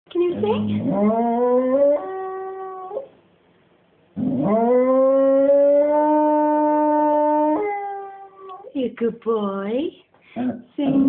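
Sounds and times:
dog howling: 0.4 - 3.1, 4.2 - 8.7.

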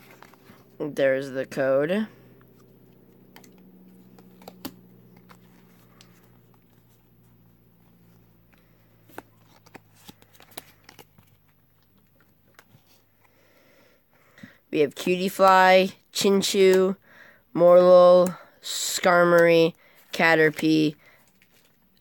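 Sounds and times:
cards sliding and clicking: 0.0 - 0.7, 2.4 - 13.4
low hum: 0.0 - 14.2.

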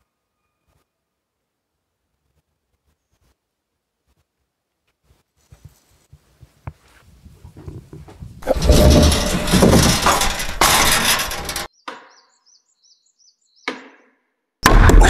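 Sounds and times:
small bird chirping: 11.7 - 13.8.

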